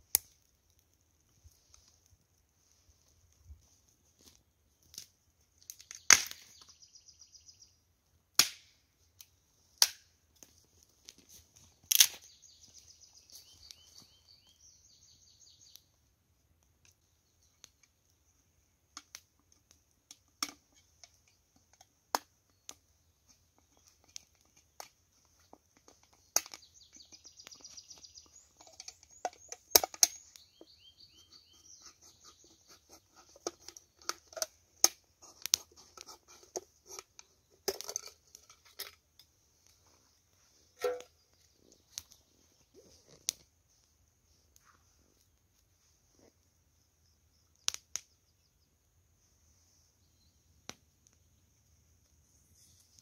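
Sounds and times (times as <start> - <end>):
handling clicks and crackles: 8.4 - 14.1, 18.9 - 30.8, 31.7 - 43.9.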